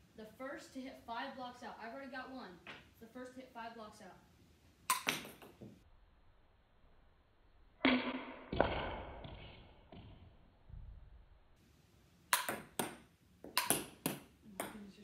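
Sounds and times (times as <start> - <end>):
ping-pong ball off paddle: 4.9 - 5.7, 12.3 - 14.9.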